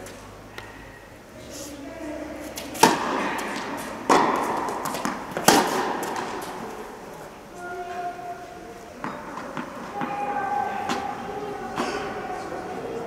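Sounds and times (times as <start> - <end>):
tennis balls struck by racket: 2.5 - 7.0, 9.0 - 12.2.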